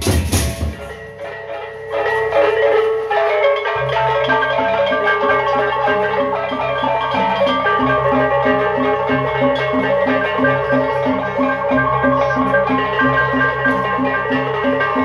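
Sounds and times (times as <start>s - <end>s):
drum and cymbal strikes: 0.0s - 1.2s
bronze gongs melody: 0.0s - 15.0s.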